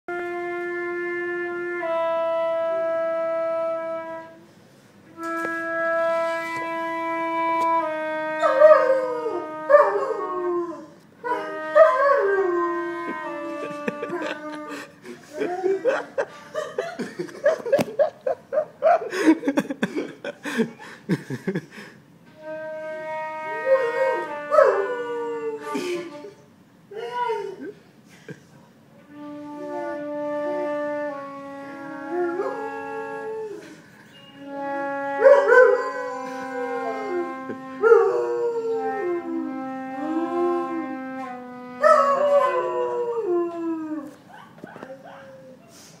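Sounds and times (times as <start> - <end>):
flute holding long note: 0.1 - 16.6, 22.3 - 26.6, 29.0 - 44.2.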